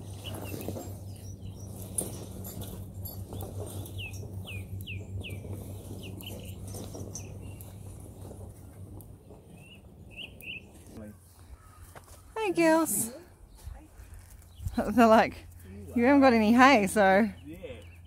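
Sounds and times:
horse crunching grass: 0:00.0 - 0:11.0
small birds chirping: 0:00.0 - 0:18.0
steady low hum: 0:00.0 - 0:18.0.

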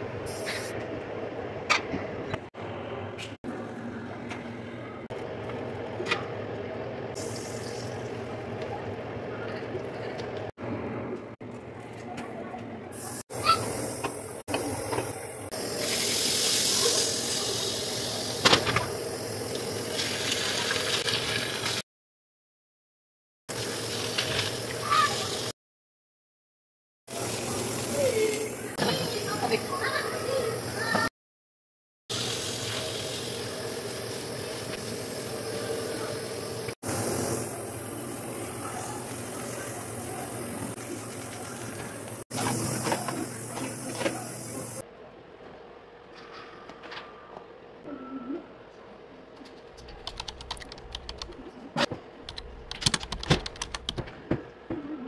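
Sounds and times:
eggs sizzling in a frying pan: 0:19.5 - 0:21.8.

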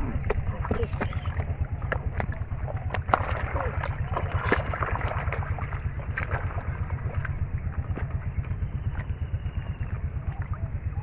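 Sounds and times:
splashes in muddy water: 0:00.0 - 0:08.1.

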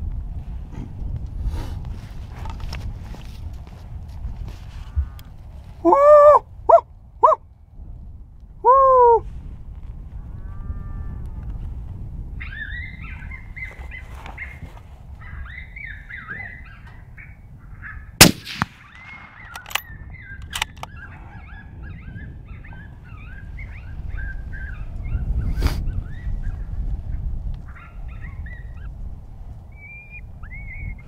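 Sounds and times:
suppressed rifle shot: 0:18.2 - 0:20.8.

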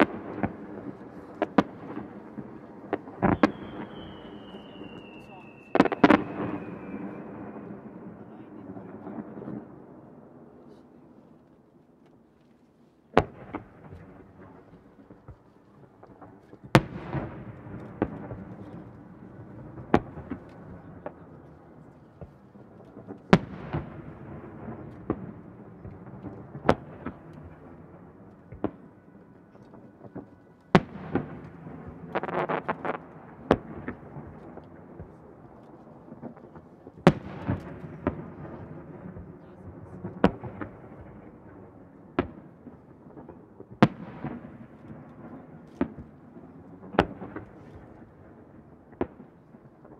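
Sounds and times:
firework crackling: 0:00.0 - 0:07.9, 0:30.8 - 0:41.3.

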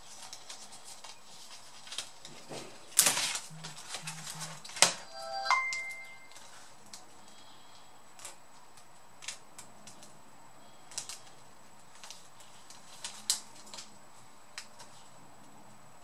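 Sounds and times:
plastic laptop parts clicking: 0:08.2 - 0:10.2, 0:11.9 - 0:13.9.

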